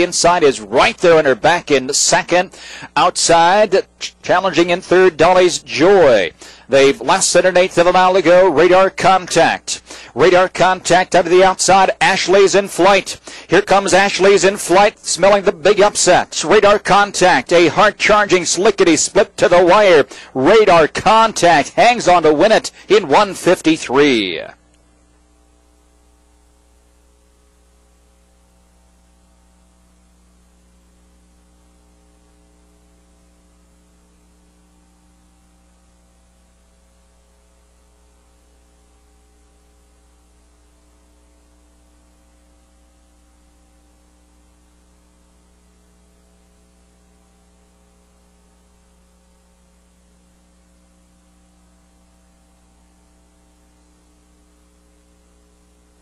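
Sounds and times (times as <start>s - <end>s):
faint hiss: 0.0s - 4.4s, 8.3s - 11.0s
electrical mains hum: 0.0s - 56.0s.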